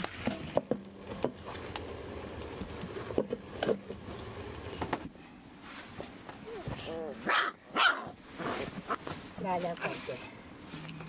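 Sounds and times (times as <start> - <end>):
potatoes frying in a pan: 0.0 - 4.9.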